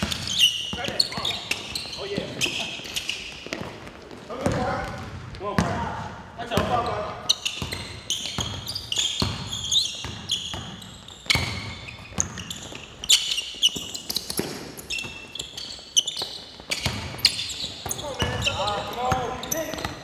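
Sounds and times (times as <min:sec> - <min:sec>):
sneakers squeaking: 0:00.0 - 0:20.0
basketball bouncing on wooden floor: 0:03.4 - 0:06.9, 0:07.6 - 0:13.0, 0:16.2 - 0:20.0.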